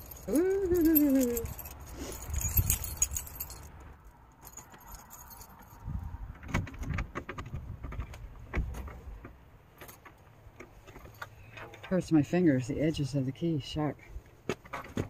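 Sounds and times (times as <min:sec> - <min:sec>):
keys jangling: 0:00.0 - 0:05.9.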